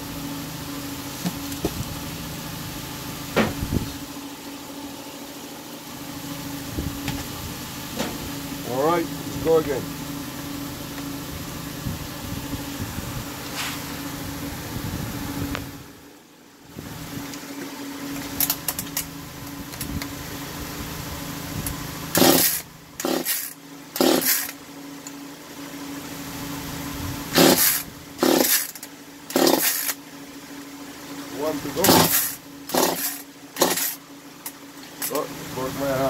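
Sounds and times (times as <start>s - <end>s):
steady hum: 0.0s - 36.0s
chainsaw starter rope yanks: 22.2s - 24.6s, 27.4s - 30.0s, 31.8s - 34.0s.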